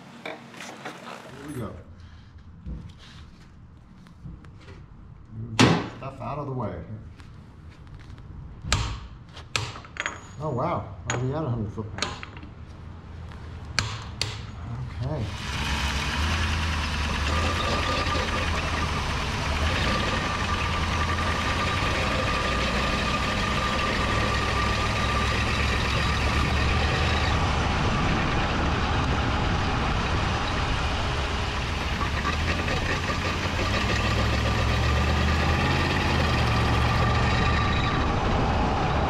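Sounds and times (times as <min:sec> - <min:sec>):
vehicle road rumble: 0:12.3 - 0:39.0
high-pitched drivetrain tone: 0:15.3 - 0:39.0.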